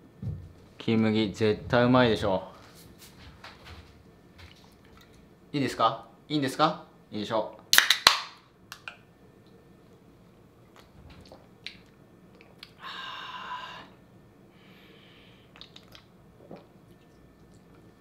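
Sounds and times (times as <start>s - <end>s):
breathy exhale: 12.8s - 15.5s
swallowing: 15.5s - 17.9s.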